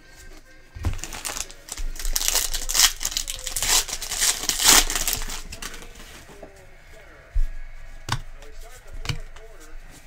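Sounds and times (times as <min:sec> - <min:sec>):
foil wrapper crinkling and tearing: 0:00.8 - 0:06.0.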